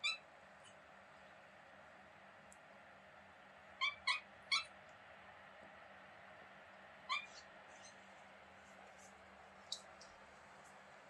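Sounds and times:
kitten chirping: 0:00.0 - 0:00.2, 0:03.8 - 0:04.7, 0:07.1 - 0:08.0.

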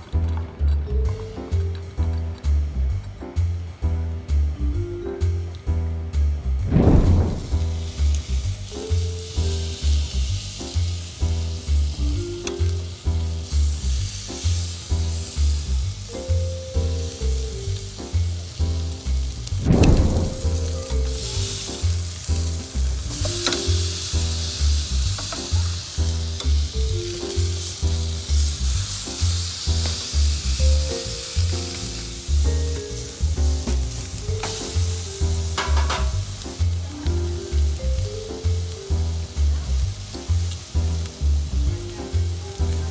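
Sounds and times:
music with steady beat: 0:00.9 - 0:09.7, 0:19.4 - 0:42.4
steaks sizzling on a grill: 0:07.4 - 0:42.9.

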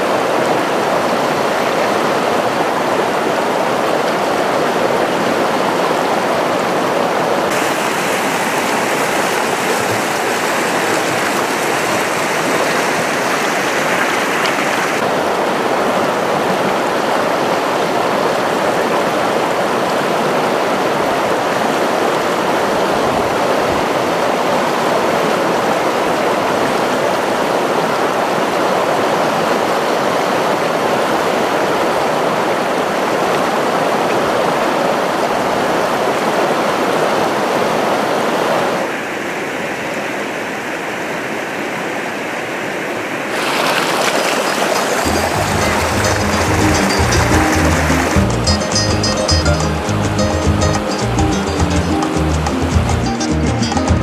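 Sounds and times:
river rushing over rapids: 0:00.0 - 0:53.9.

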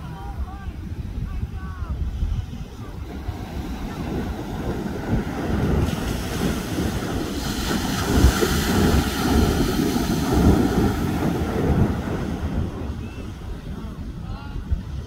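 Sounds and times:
wind buffeting microphone: 0:00.0 - 0:15.0
wave breaking with foam hiss: 0:03.1 - 0:13.0.

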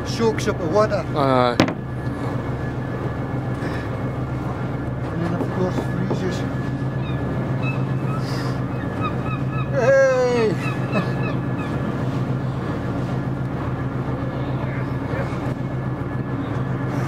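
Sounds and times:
boat engine humming: 0:00.0 - 0:17.0
honking squawk: 0:10.6 - 0:11.9.

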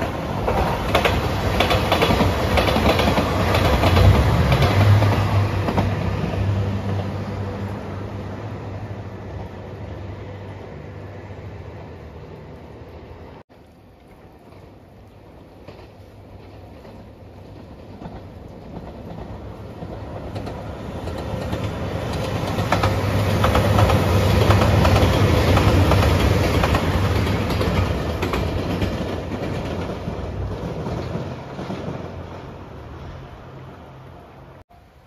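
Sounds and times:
wheels clacking over rail joints: 0:00.0 - 0:07.2, 0:15.4 - 0:32.7
diesel train engine hum: 0:00.0 - 0:13.4, 0:14.5 - 0:35.0.

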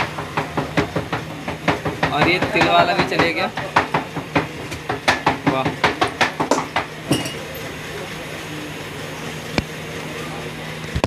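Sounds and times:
metal utensils and pots clinking: 0:07.1 - 0:07.7.

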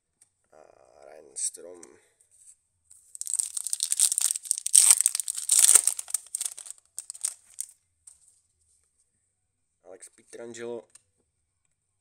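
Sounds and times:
plastic wrapper crinkling: 0:03.2 - 0:07.7.

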